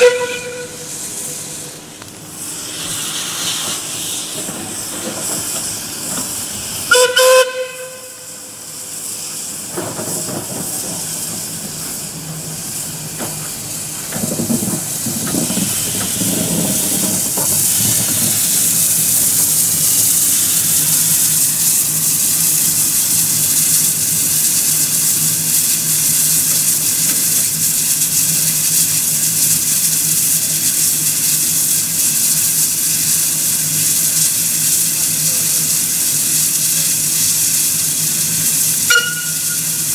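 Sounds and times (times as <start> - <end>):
steam whistle blast: 0.0 - 1.6, 6.9 - 8.5, 38.8 - 39.9
steam hissing: 0.0 - 39.9.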